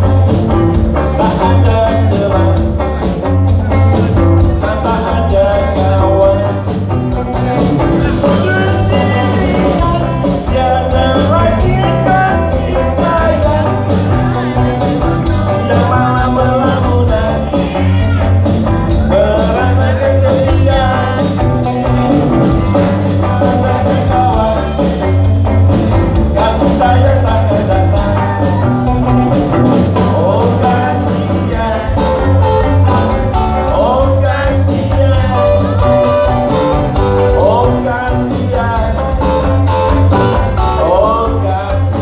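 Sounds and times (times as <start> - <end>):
electric guitar: 0.0 - 42.0
heavy bass line: 0.0 - 42.0
man singing into a microphone: 1.0 - 3.0, 3.8 - 6.8, 7.8 - 21.6, 22.7 - 25.3, 26.1 - 29.0, 29.8 - 36.1, 37.2 - 39.3, 40.5 - 42.0.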